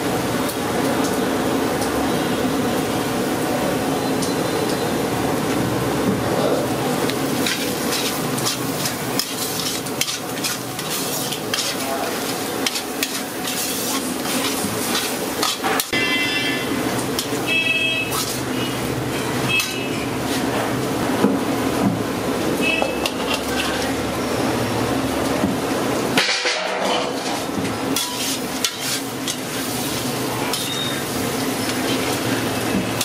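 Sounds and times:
onions sizzling in oil: 0:06.7 - 0:20.9, 0:27.1 - 0:33.0
metal ladle scraping pan: 0:07.3 - 0:17.4, 0:26.3 - 0:32.2.

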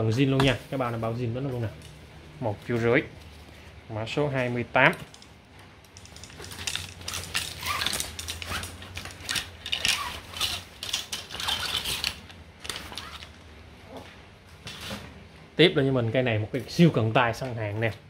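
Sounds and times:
fishing tackle clicking and rattling: 0:05.0 - 0:13.4.

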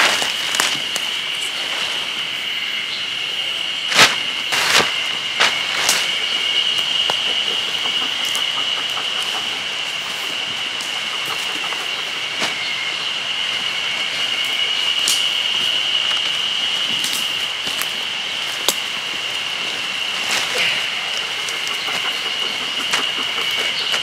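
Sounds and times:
high-pitched whine: 0:00.0 - 0:24.0
campfire crackling and popping: 0:03.9 - 0:12.6, 0:15.0 - 0:19.4.

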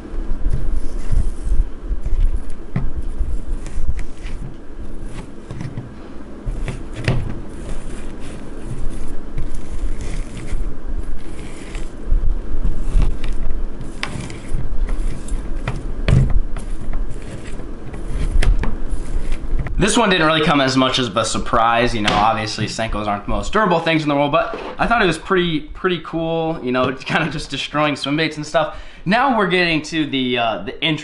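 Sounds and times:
hot knife scraping soft plastic: 0:00.5 - 0:12.0, 0:12.6 - 0:15.9, 0:16.6 - 0:19.7.

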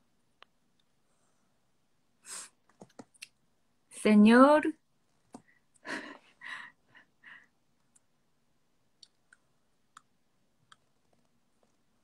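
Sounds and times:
soft breathy sounds: 0:00.8 - 0:02.7, 0:05.3 - 0:08.2.

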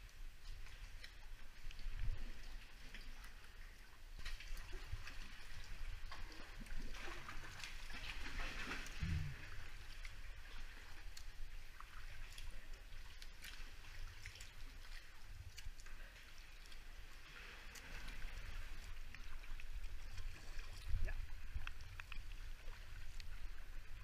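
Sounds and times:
water splashing along hull: 0:00.0 - 0:24.0
low thump: 0:09.0 - 0:09.6.

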